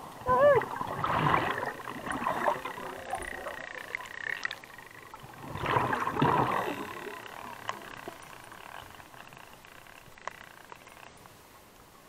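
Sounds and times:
underwater bubbles from diver: 0.1 - 9.4.

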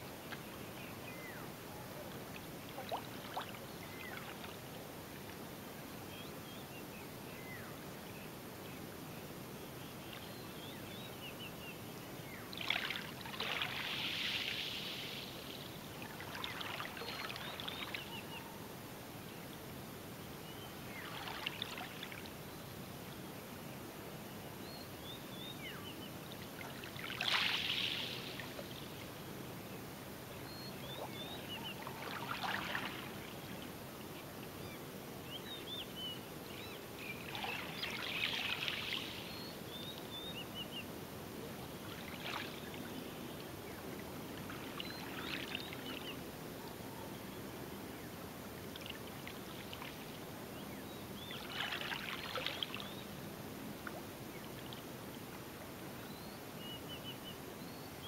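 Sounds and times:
small waves lapping on beach: 0.0 - 5.5, 12.2 - 18.6, 20.8 - 22.5, 25.5 - 34.8, 36.5 - 40.2, 40.8 - 46.5, 47.8 - 56.0.

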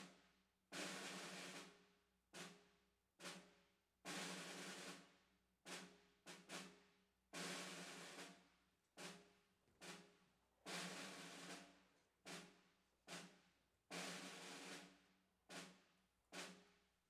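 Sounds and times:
faint marching drum: 9.0 - 16.8.

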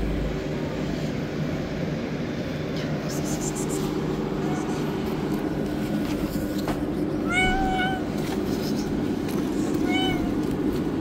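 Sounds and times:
low background rumble: 0.0 - 11.0
cat meowing: 7.2 - 8.1, 9.7 - 10.4.

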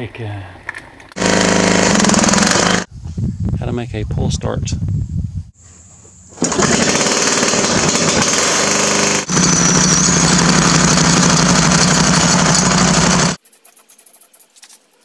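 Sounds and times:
small gasoline engine running: 1.2 - 2.9, 6.4 - 13.4.

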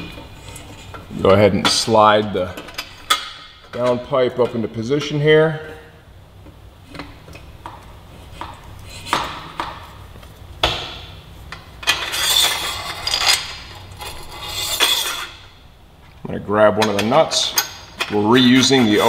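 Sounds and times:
metal scraping: 11.8 - 15.6, 16.8 - 19.0.

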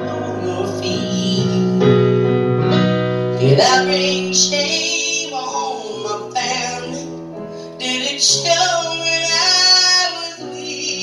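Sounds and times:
woman singing country song: 0.0 - 1.8, 3.4 - 7.1, 7.8 - 11.0
keyboard accompaniment: 0.0 - 11.0.

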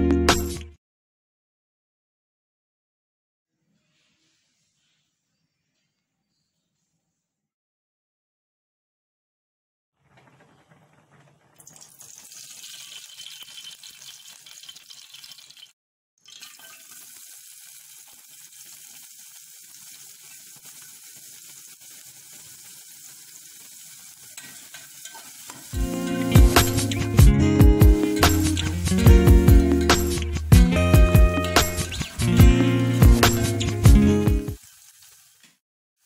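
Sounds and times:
onions sizzling in oil: 16.4 - 27.2, 31.3 - 35.6
loud music: 25.8 - 34.6.

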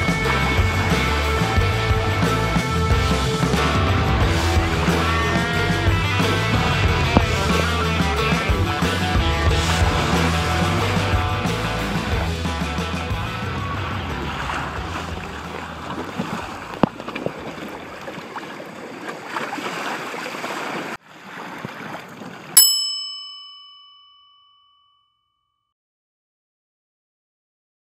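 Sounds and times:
water rushing along a hull: 9.6 - 22.7
bell ding: 22.6 - 25.6.

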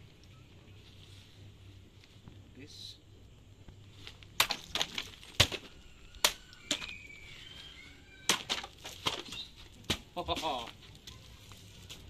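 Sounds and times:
blade slashing plastic bottles: 4.4 - 6.9.

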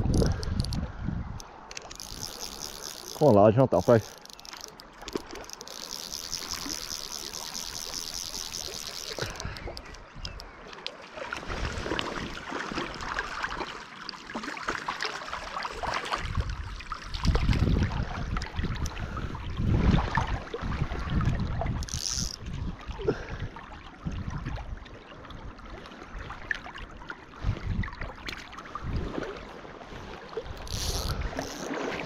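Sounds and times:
fishing reel ratchet clicking: 0.0 - 0.8, 1.7 - 10.5, 21.8 - 22.5, 30.5 - 31.7
river water rushing and splashing: 10.5 - 17.7.

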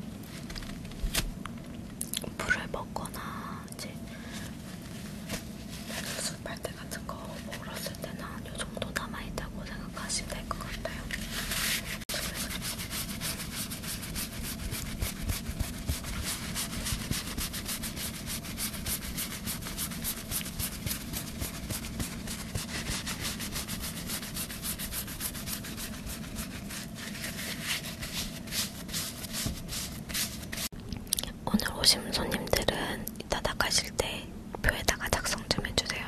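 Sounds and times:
hands rubbing near microphone: 10.6 - 30.7.

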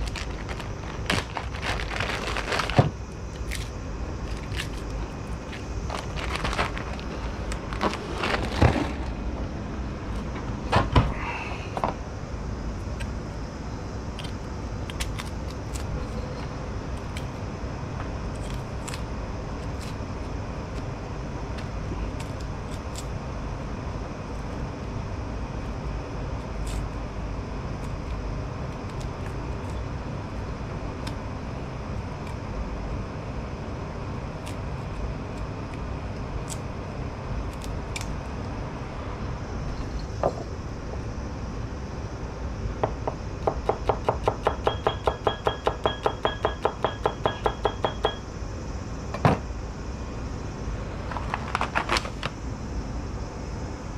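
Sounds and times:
steady low rumble: 0.0 - 22.6.

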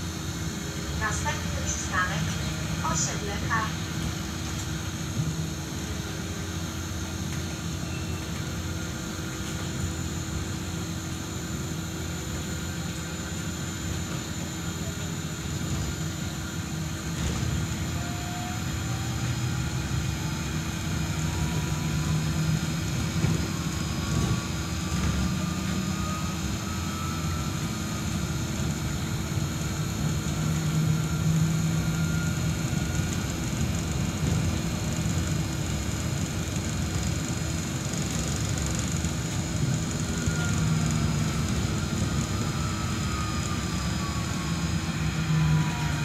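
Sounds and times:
trolleybus rumble and hum: 0.0 - 46.0
electric motor whine: 37.8 - 46.0.

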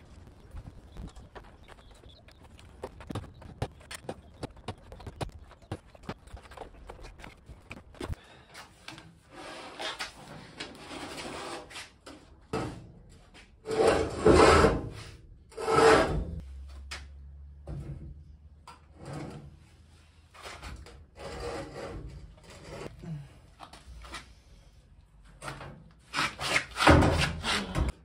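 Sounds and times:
table saw scraping on concrete: 9.2 - 12.0, 13.6 - 16.4, 20.3 - 22.9.

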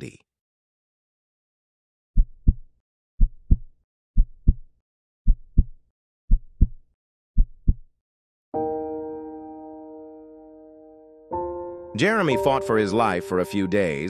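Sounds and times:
heartbeat thumps: 2.2 - 4.7, 5.3 - 6.8, 7.4 - 7.9.

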